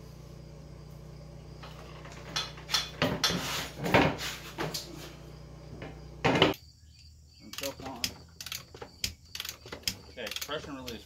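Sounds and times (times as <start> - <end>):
steady low hum: 0.0 - 6.6
metal clanks and rattles: 1.6 - 4.2.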